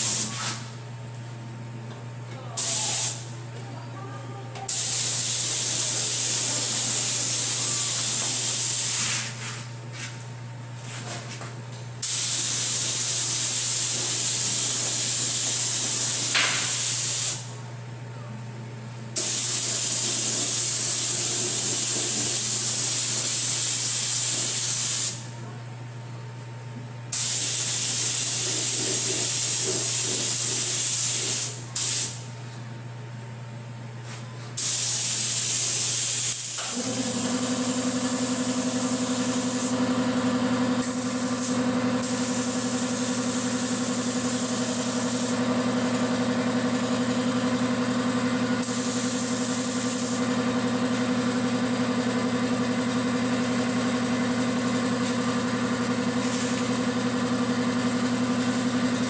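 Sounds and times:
air compressor motor humming: 0.0 - 1.3, 1.9 - 3.6, 4.5 - 17.6, 19.1 - 25.3, 27.1 - 32.3, 34.0 - 59.0
spray gun hissing: 2.6 - 3.2, 4.7 - 9.4, 12.0 - 17.4, 19.2 - 25.2, 34.6 - 39.7, 40.8 - 45.3, 48.6 - 50.2.

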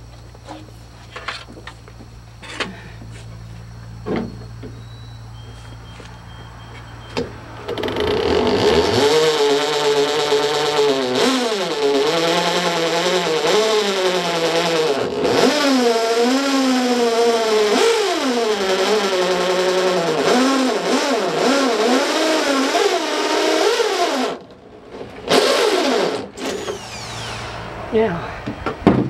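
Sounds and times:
electric drill boring into metal: 7.7 - 24.5, 25.3 - 27.7.

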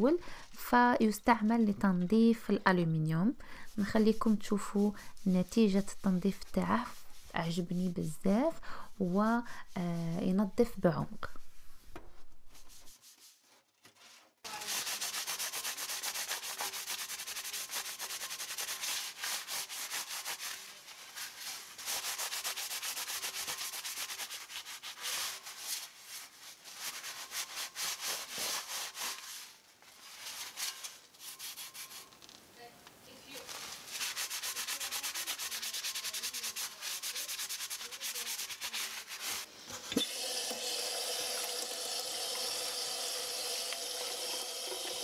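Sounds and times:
sponge scrubbing metal: 14.5 - 29.6, 30.2 - 32.1, 33.5 - 39.5.

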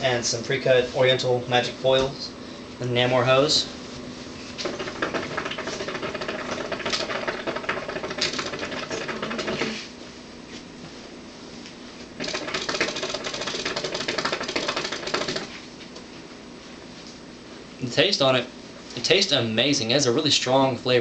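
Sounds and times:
hookah water bubbling: 4.6 - 9.8, 12.2 - 15.5.

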